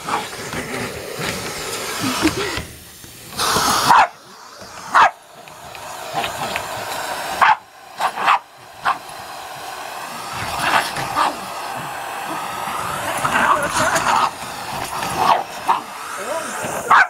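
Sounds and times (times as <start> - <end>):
vacuum cleaner motor humming: 0.0 - 17.0
dog barking: 3.8 - 4.2, 4.9 - 5.2, 7.4 - 9.1, 15.2 - 15.9.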